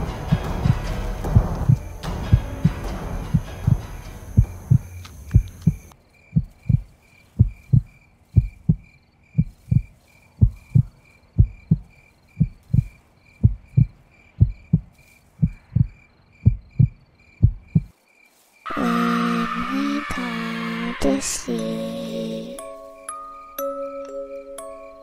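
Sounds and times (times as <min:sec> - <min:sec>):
heartbeat double thump: 0:00.0 - 0:17.9
background hiss: 0:00.0 - 0:25.0
crickets chirping: 0:00.0 - 0:25.0.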